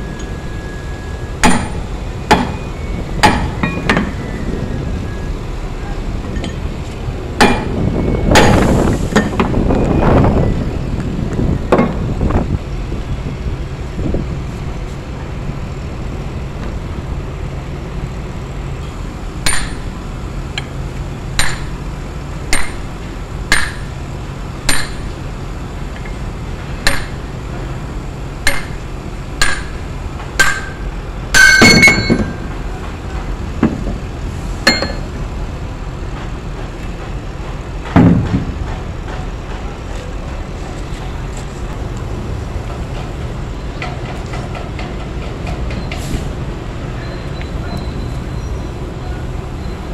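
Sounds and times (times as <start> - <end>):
hammer striking steel: 1.4 - 2.6, 3.2 - 4.2, 7.4 - 8.6, 19.4 - 19.9, 21.4 - 21.8, 22.5 - 22.9, 23.5 - 24.0, 24.7 - 25.1, 26.8 - 27.2, 28.4 - 28.8, 29.4 - 29.8, 30.4 - 32.6, 34.6 - 35.1.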